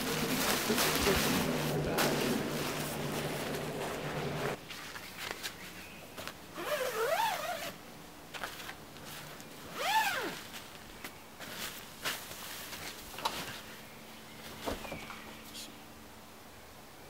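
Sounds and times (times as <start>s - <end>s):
tent zipper being pulled: 0.0s - 4.6s, 6.6s - 7.8s, 9.1s - 10.7s.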